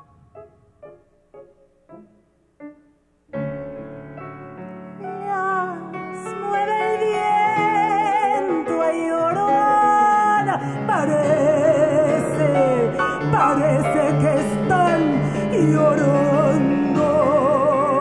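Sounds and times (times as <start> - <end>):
piano accompaniment: 0.0 - 18.0
woman singing with vibrato: 5.0 - 18.0.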